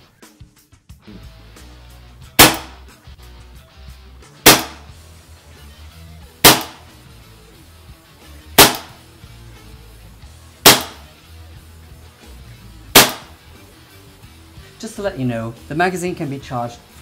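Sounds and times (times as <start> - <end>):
background music: 0.0 - 17.0
airsoft pistol shots: 2.4 - 2.8, 4.4 - 4.9, 6.4 - 6.9, 8.6 - 9.0, 10.6 - 11.1, 12.9 - 13.4.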